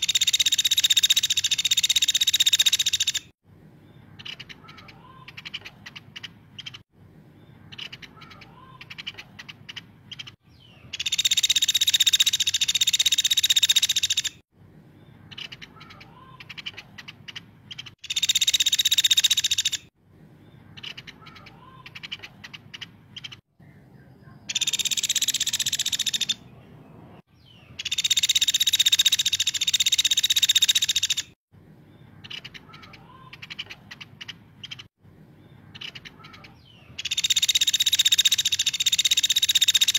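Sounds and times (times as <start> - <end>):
woodpecker buzzing trills: 0.0 - 3.3.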